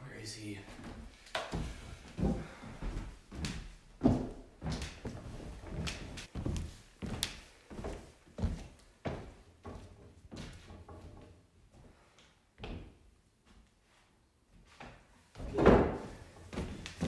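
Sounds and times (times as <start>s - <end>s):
footsteps on wooden floor: 0.7s - 12.0s, 15.5s - 17.0s.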